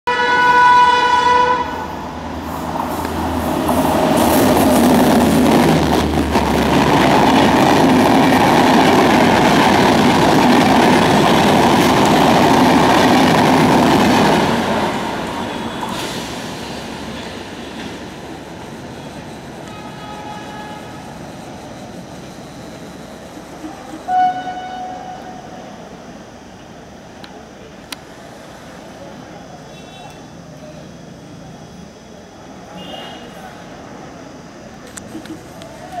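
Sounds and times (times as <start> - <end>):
train horn: 0.1 - 2.0, 19.6 - 21.0, 24.1 - 25.7
passenger train rushing past: 0.1 - 29.6.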